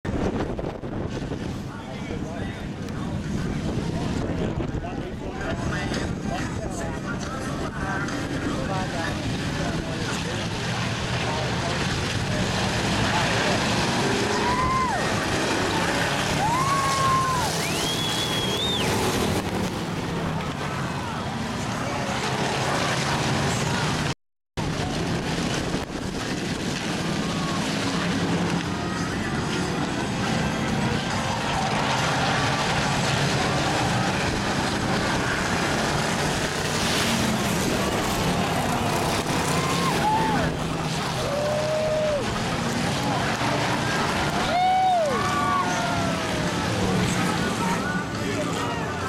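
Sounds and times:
race car engines din: 0.1s - 49.0s
crowd shrill cries: 16.3s - 19.1s, 39.4s - 40.6s, 41.2s - 42.2s, 44.4s - 46.5s.

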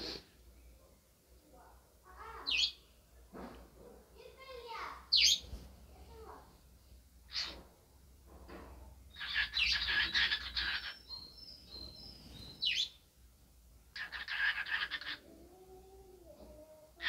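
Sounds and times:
cockatiel chirping and warbling: 2.4s - 2.8s, 5.1s - 5.4s, 7.3s - 7.6s, 9.1s - 13.0s, 14.0s - 15.2s.

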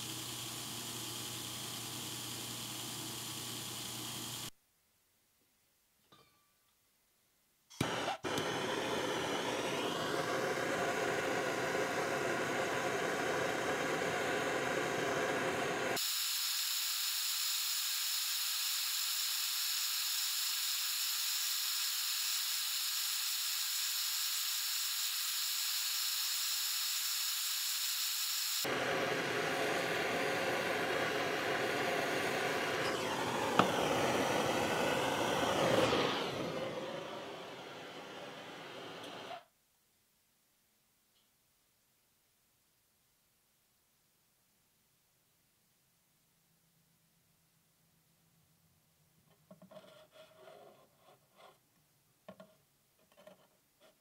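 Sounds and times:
blowtorch flame hissing: 0.0s - 4.5s, 7.8s - 39.4s.

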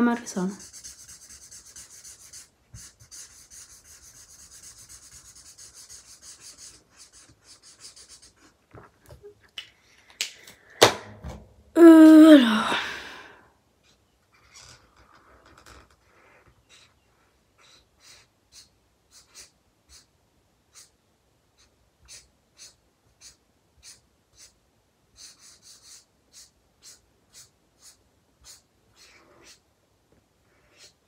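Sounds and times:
marker scratching on paper: 0.3s - 8.6s, 13.8s - 20.1s, 20.7s - 21.0s, 21.6s - 29.6s, 30.5s - 31.0s.

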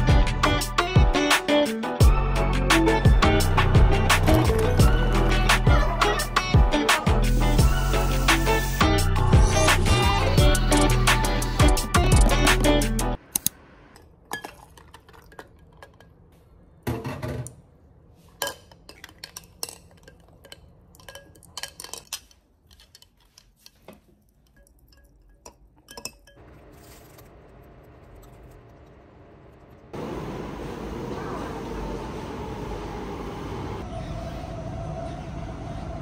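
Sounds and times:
music: 0.0s - 13.2s
hard objects clinking: 18.3s - 28.9s.

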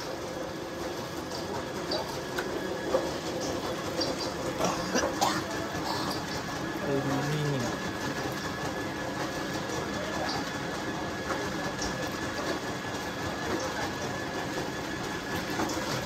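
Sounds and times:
faint motor whine: 0.0s - 16.0s
motor droning: 1.9s - 8.2s.

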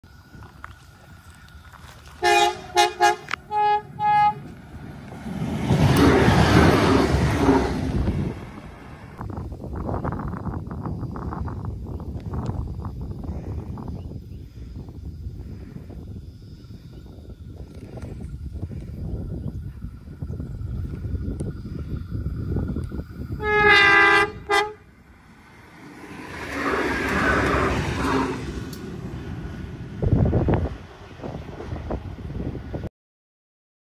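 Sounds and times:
railcars passing at speed: 0.1s - 11.6s, 17.0s - 32.9s
wind rumble on microphone: 0.1s - 32.9s
train horn toots: 2.2s - 4.5s, 5.9s - 7.9s, 23.4s - 24.9s, 26.6s - 28.6s.

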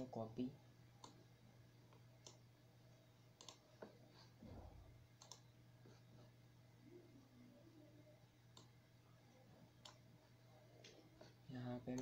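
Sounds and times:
low electrical hum: 0.0s - 12.0s
computer mouse clicks: 1.0s - 1.2s, 1.9s - 2.4s, 3.4s - 4.0s, 5.1s - 6.0s, 8.5s - 8.8s, 9.8s - 10.0s.

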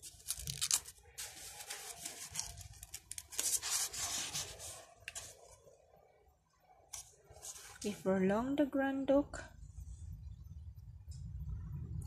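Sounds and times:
book pages being turned: 0.0s - 5.7s, 6.9s - 8.0s.

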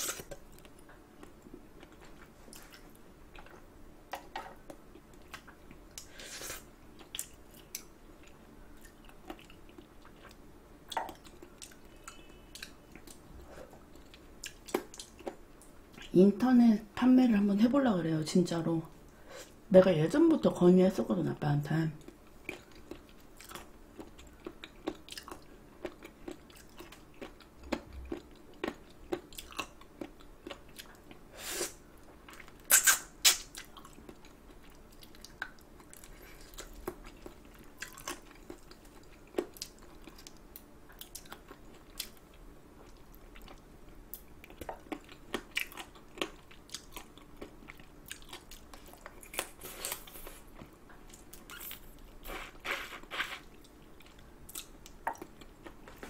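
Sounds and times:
wet chewing and sucking: 22.5s - 40.4s, 44.5s - 56.0s.

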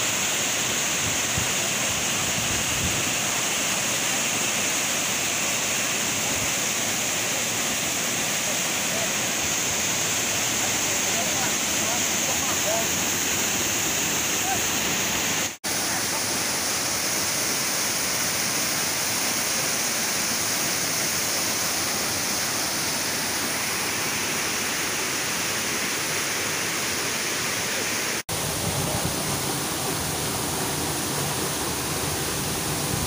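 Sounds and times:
waterfall rushing: 0.0s - 33.0s.

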